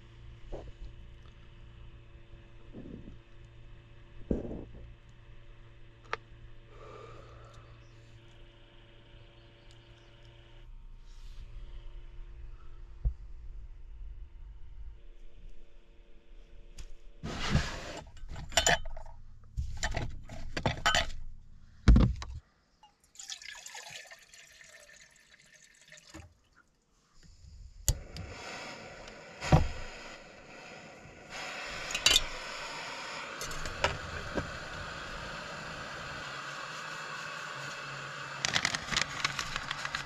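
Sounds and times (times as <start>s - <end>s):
gas burner hissing: 6.6s - 9.3s, 27.2s - 40.0s.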